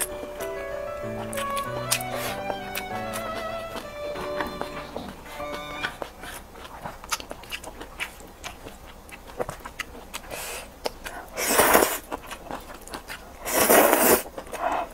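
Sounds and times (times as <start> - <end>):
person chewing with wet clicks: 6.0 - 14.9
person slurping noodles: 11.4 - 12.0, 13.4 - 14.3.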